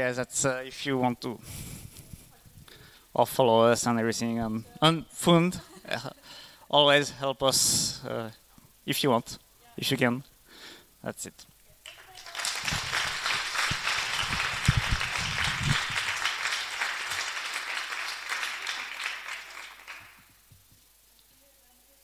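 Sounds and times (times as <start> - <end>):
audience applauding: 11.9 - 20.3.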